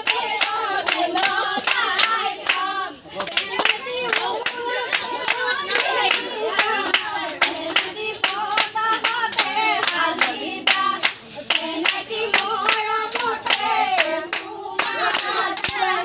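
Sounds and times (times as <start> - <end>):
people clapping in rhythm: 0.0 - 16.0
voices singing: 0.0 - 16.0.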